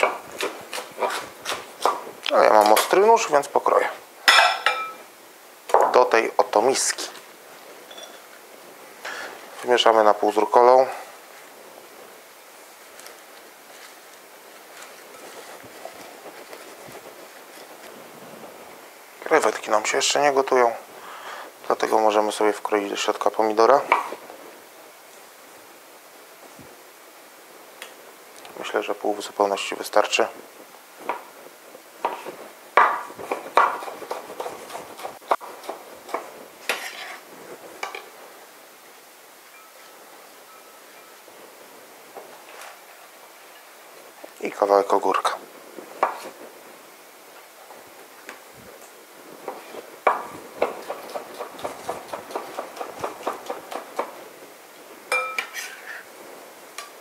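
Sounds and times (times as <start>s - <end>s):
knife chopping on wooden board: 32.0s - 37.1s, 49.5s - 54.2s.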